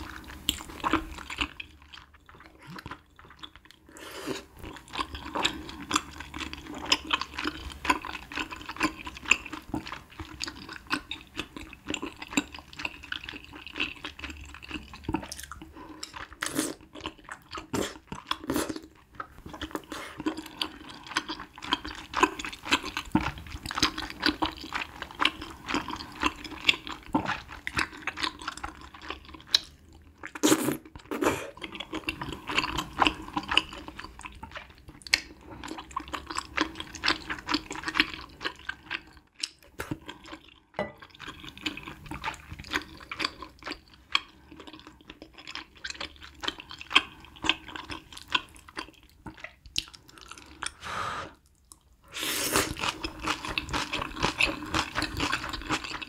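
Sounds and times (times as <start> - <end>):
wet chewing and smacking: 0.0 - 50.8, 52.6 - 56.0
slurping noodles: 3.9 - 6.0, 52.0 - 55.8.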